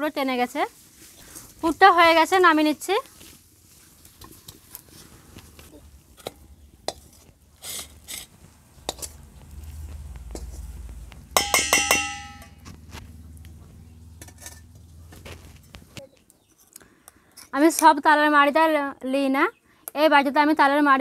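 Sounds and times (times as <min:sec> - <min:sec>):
spatula scraping wok: 0:06.1 - 0:12.8, 0:14.1 - 0:15.0
ringing metal clinks: 0:11.4 - 0:12.6.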